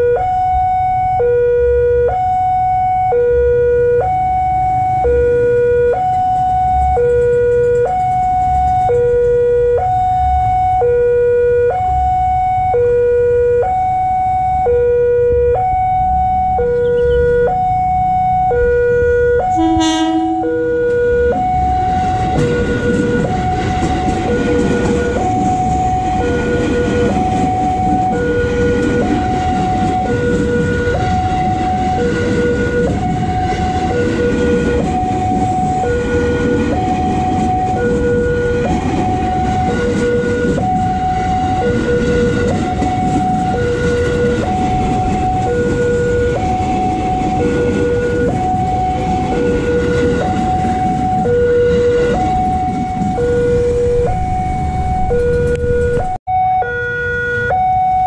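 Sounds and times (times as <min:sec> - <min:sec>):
electric train rumbling past: 0:00.0 - 0:56.2
level-crossing two-tone alarm: 0:00.0 - 0:58.0
train horn blast: 0:16.7 - 0:17.6, 0:18.6 - 0:21.5, 0:23.9 - 0:37.0.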